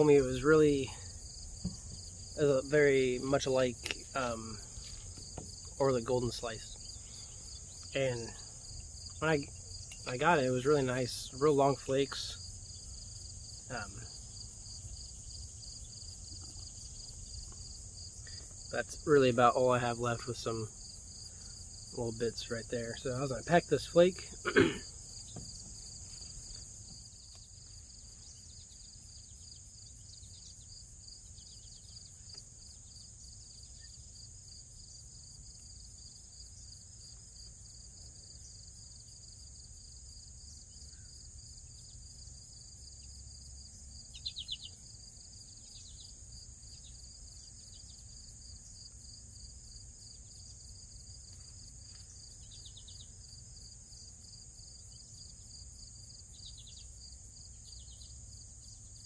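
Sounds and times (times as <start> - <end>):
high insect drone: 0.0 - 59.0
pulsing insect trill: 0.0 - 59.0
short chirping calls: 44.1 - 44.8.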